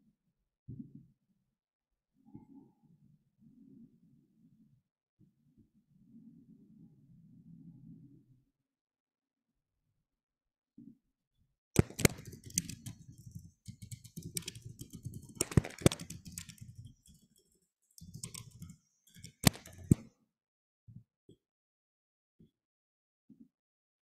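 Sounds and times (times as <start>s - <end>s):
computer keyboard typing: 11.8s - 20.0s.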